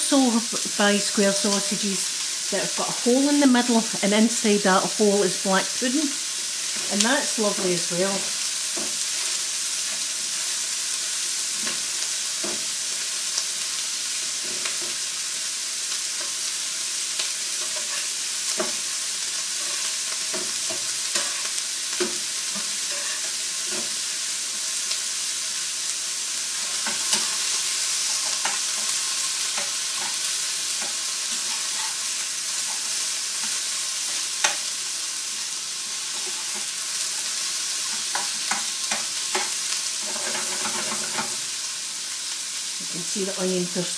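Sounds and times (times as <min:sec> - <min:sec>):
food sizzling in frying pans: 0:00.0 - 0:43.9
utensil scraping pans: 0:19.6 - 0:23.9, 0:26.8 - 0:32.9, 0:36.0 - 0:37.3, 0:37.9 - 0:41.4.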